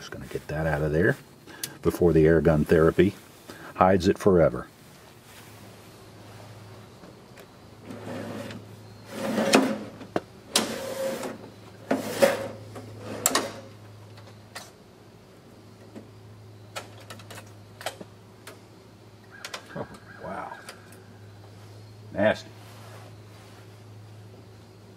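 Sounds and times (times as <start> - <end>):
metal chassis scraping and rattling: 7.9 - 10.0, 10.6 - 13.7.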